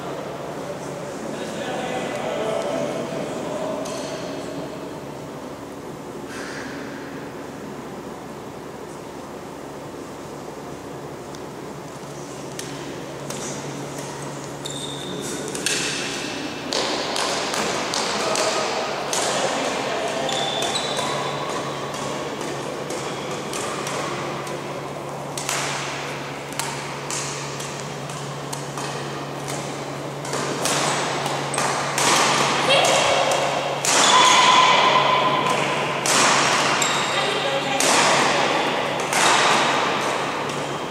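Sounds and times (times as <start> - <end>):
voices: 0.5 - 4.8, 29.5 - 39.4
racket striking shuttlecock: 12.5 - 24.7, 25.3 - 40.9
shoes squeaking on court: 13.3 - 16.2, 20.1 - 23.8, 36.7 - 37.4.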